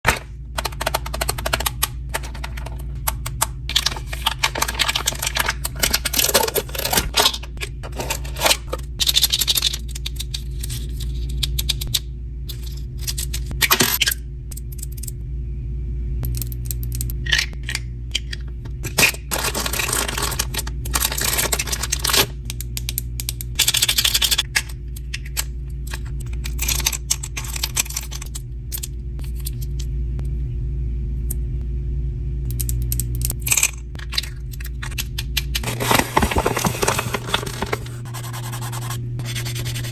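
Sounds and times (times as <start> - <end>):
packaging crinkling and tearing: 35.6 - 38.1.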